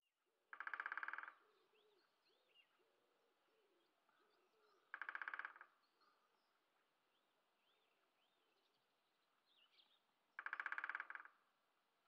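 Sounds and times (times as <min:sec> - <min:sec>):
faint small-bird calls: 0:00.6 - 0:06.5
woodpecker drumming: 0:10.4 - 0:11.3.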